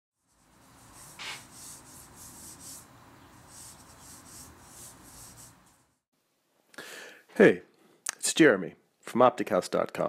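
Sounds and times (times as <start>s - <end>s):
pencil scratching on paper: 0.2s - 6.0s.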